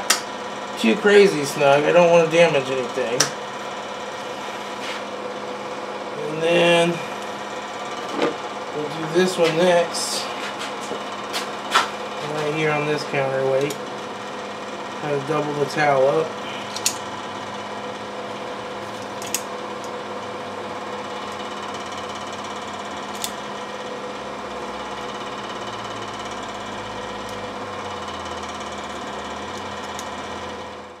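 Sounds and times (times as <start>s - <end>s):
space heaters humming: 0.0s - 31.0s
locking pliers clicking on metal: 16.7s - 17.0s, 19.1s - 19.5s, 23.1s - 23.4s.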